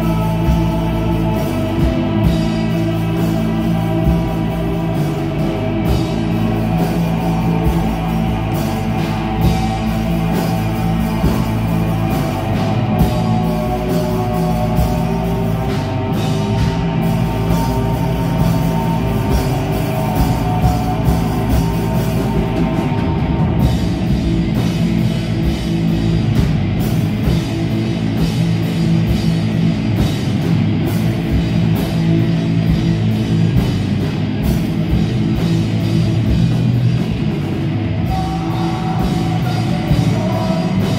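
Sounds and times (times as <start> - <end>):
drum kit: 0.0 - 40.9
electric guitars: 0.0 - 40.9.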